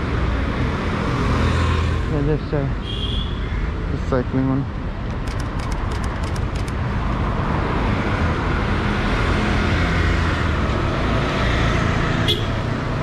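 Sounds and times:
tyre noise of passing vehicles: 0.0 - 13.0
vehicle engines running: 3.7 - 13.0
sharp clicks: 5.1 - 6.9.

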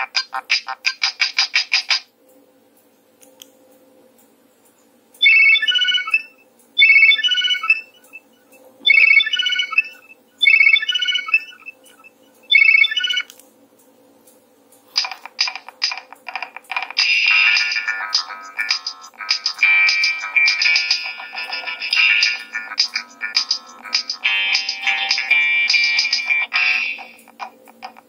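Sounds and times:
electronic ringtone phrase: 5.2 - 8.0, 8.9 - 11.7, 12.5 - 13.3, 17.2 - 27.2.

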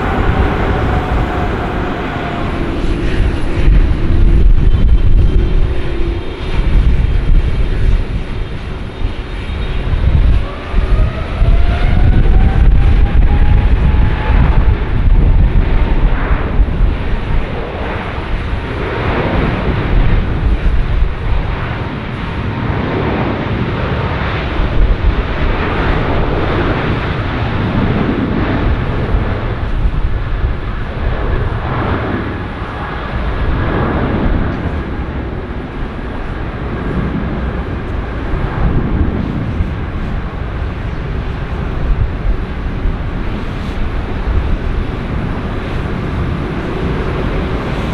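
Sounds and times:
jet engines spooling up: 0.0 - 23.4.

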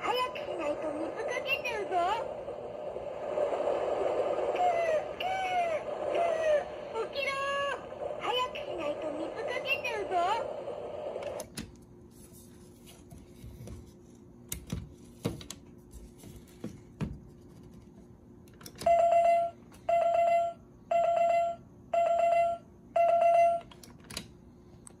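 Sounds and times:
alarm clock beeps: 18.8 - 23.7.

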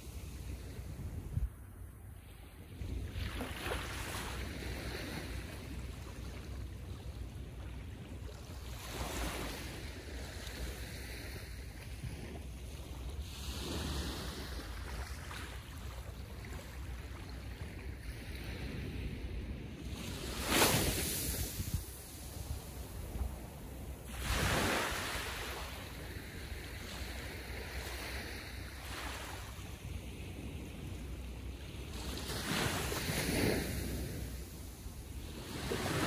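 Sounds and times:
small waves washing onto beach: 2.2 - 36.0.

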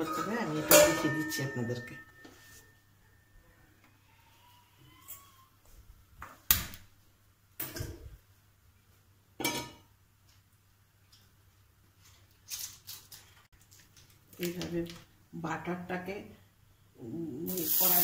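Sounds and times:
metal pots clattering on grates: 0.0 - 1.9, 9.4 - 9.9.

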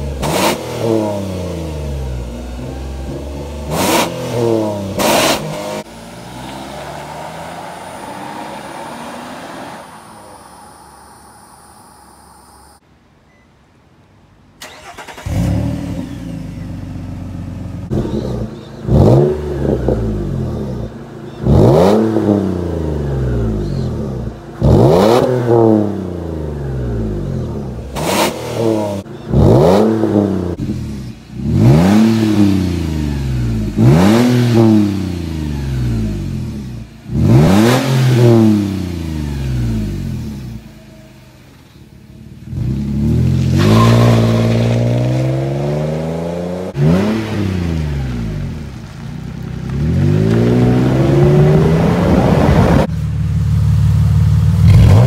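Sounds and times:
engine exhaust revving: 14.6 - 40.7, 42.4 - 55.0.

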